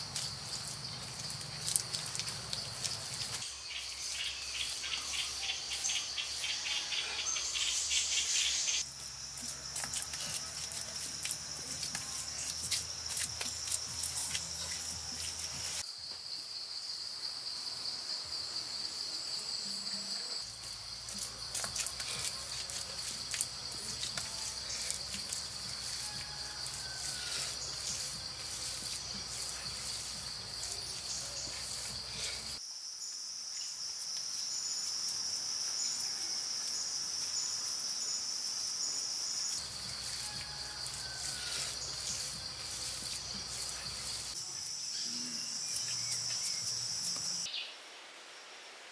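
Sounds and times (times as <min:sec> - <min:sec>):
insects chirring: 0:00.0 - 0:48.6.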